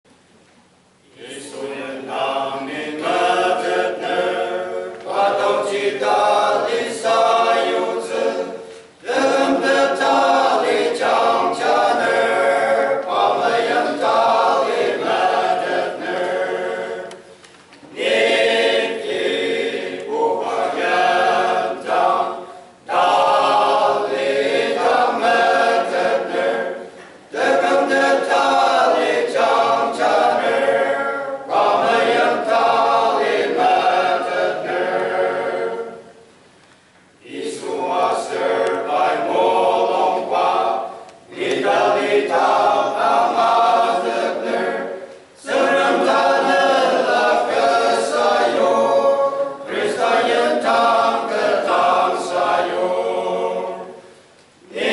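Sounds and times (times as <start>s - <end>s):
male voice choir singing a hymn: 1.1s - 36.2s, 37.2s - 54.9s.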